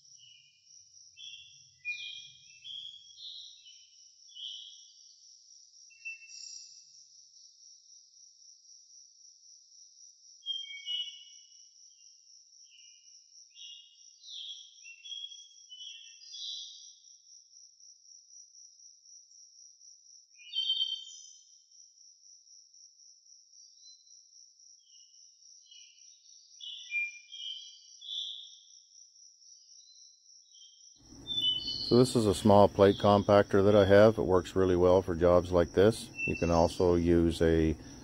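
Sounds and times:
bird chirps and twitters: 1.2s - 4.9s, 10.4s - 11.3s, 13.6s - 16.8s, 20.4s - 21.4s, 26.6s - 28.6s, 29.9s - 34.1s.

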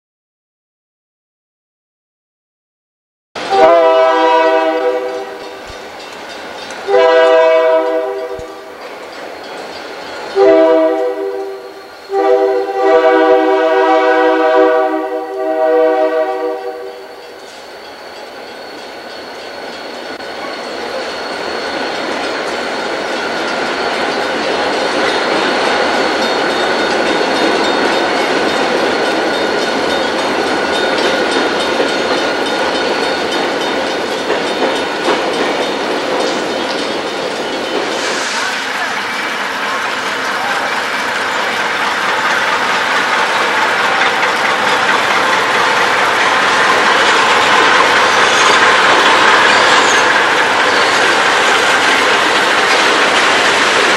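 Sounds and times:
diesel locomotive horn blasts: 3.4s - 5.5s, 6.9s - 8.7s, 10.4s - 17.2s
train wheels rumbling on rail: 3.4s - 53.9s.

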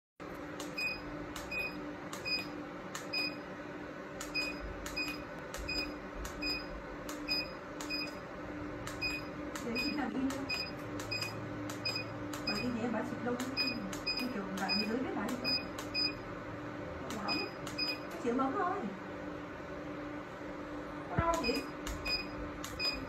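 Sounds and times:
machine hum: 0.2s - 23.0s
laser handpiece clicks: 0.6s - 3.2s, 4.2s - 8.2s, 8.8s - 12.8s, 13.4s - 16.1s, 17.1s - 18.2s, 21.3s - 23.0s
short high beeps: 13.6s - 16.2s, 17.3s - 18.1s, 21.4s - 23.0s.

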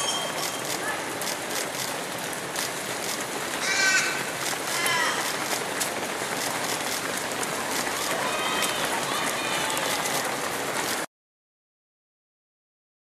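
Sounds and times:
runners' footsteps on road: 0.4s - 11.1s
crow cawing: 3.6s - 5.2s.

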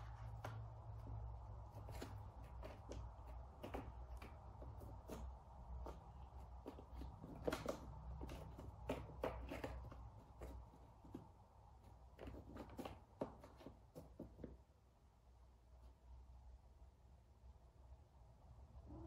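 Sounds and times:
cat pawing on cardboard: 0.0s - 14.9s
low room hum: 0.0s - 19.0s.

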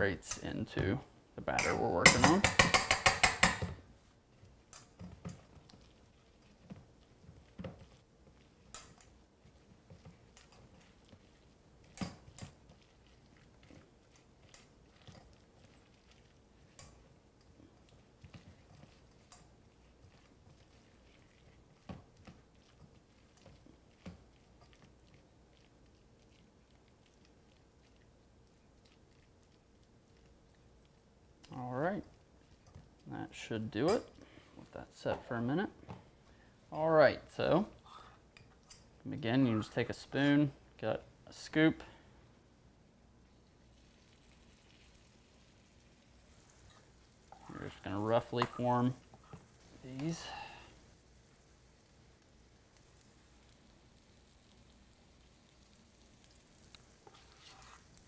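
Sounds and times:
utensil knocking against metal bowl: 1.6s - 3.8s
wet squishing of food being mashed: 1.7s - 36.8s, 41.5s - 58.0s.

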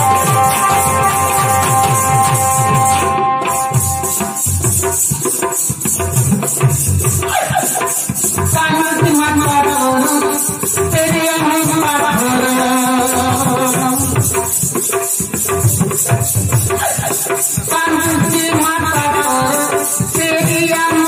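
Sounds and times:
sliding melody of held notes: 0.0s - 4.7s
drums: 0.0s - 21.0s
fast high-pitched percussion: 0.0s - 21.0s.

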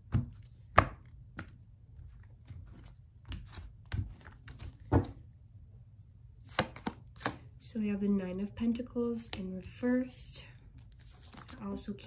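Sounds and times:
cards shuffling on tabletop: 6.5s - 7.4s, 10.8s - 11.7s.

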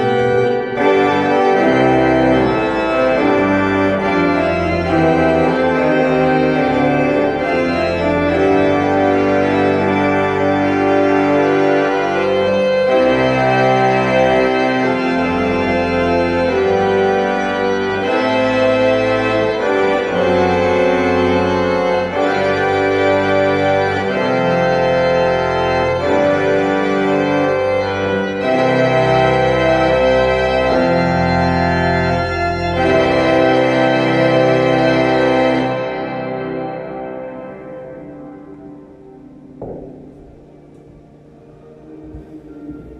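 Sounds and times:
pipe organ playing a hymn: 0.0s - 42.9s.

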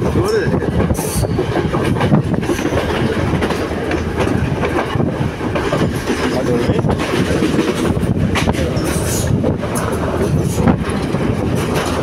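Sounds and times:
train carriage rumbling and rattling: 0.0s - 12.0s
wheels clacking over rail joints: 0.0s - 12.0s.

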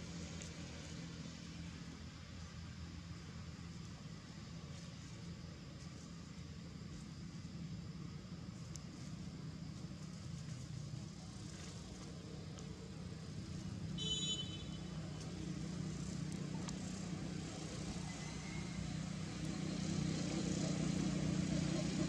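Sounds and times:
distant road traffic rumble: 0.0s - 22.0s.

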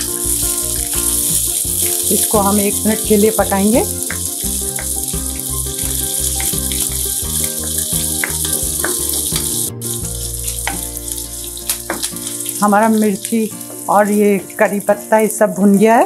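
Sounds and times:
background music with pulsing beat: 0.0s - 2.1s, 3.0s - 12.4s
spices sizzling in hot oil: 0.0s - 16.0s.

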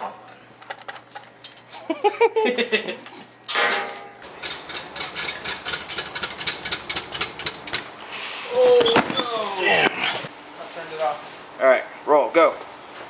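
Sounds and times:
pallet jack clicking and rattling: 3.5s - 7.9s.

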